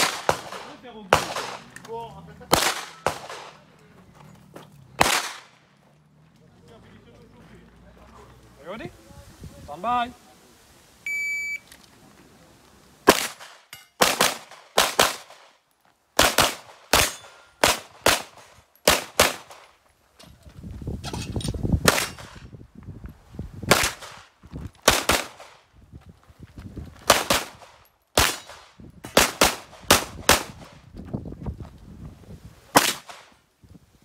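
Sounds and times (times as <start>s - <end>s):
pistol shots in quick pairs: 0.0s - 1.7s, 2.5s - 3.6s, 5.0s - 5.5s, 13.0s - 15.5s, 16.2s - 19.7s, 21.8s - 22.4s, 23.7s - 24.2s, 24.8s - 25.6s, 27.1s - 30.7s, 32.7s - 33.4s
shot timer beep: 11.1s - 11.6s.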